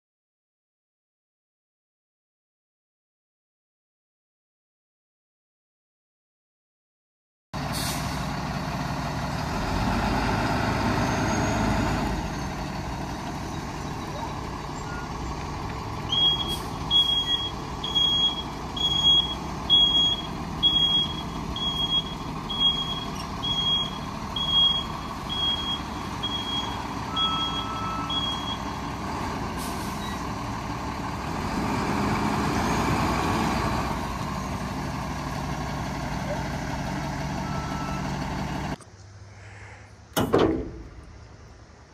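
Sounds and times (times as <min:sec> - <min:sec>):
diesel truck engine running: 0:07.6 - 0:38.8
backup alarm beeping: 0:16.1 - 0:28.8, 0:37.4 - 0:38.1.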